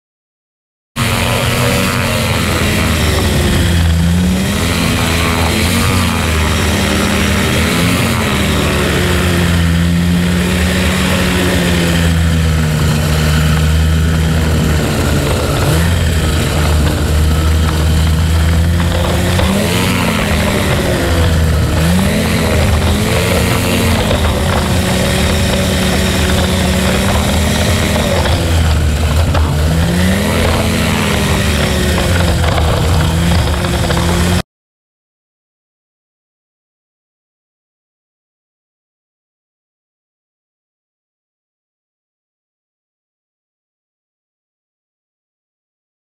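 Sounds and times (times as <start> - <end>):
two-stroke engine and propeller: 1.0 - 34.4.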